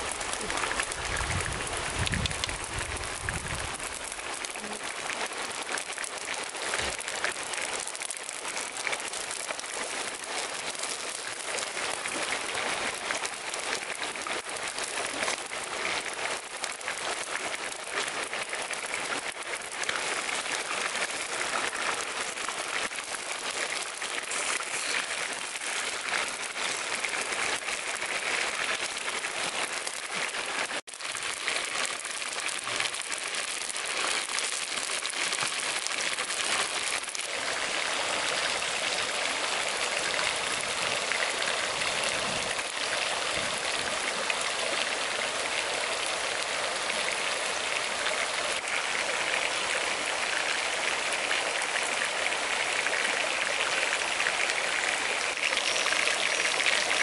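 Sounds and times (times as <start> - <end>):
chicken sizzling in oil: 0.0 - 37.7, 55.0 - 57.0.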